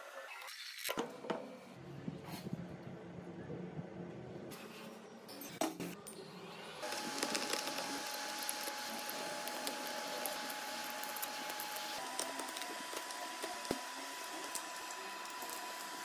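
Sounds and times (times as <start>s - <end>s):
hot-air tool hissing and whining: 6.8s - 16.0s.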